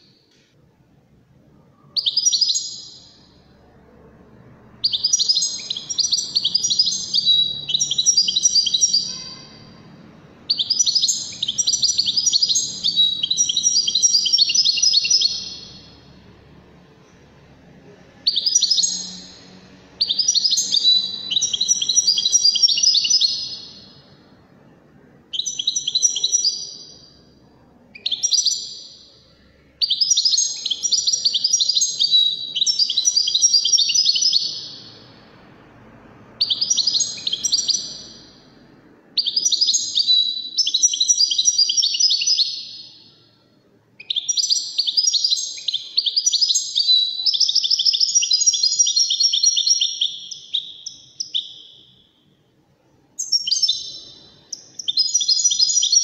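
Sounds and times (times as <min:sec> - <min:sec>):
goldfinch twittering song: 0:04.8 - 0:09.7, 0:20.0 - 0:24.0, 0:39.2 - 0:43.1.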